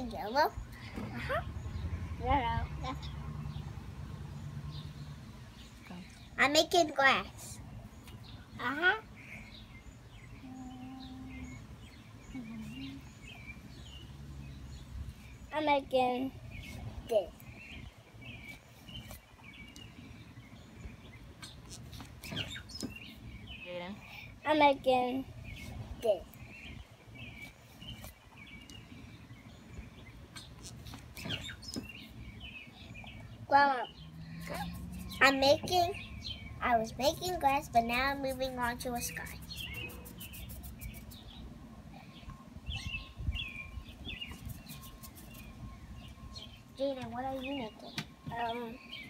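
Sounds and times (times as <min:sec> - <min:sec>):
low outdoor rumble: 0:00.0 - 0:44.6
small birds chirping: 0:00.0 - 0:49.0.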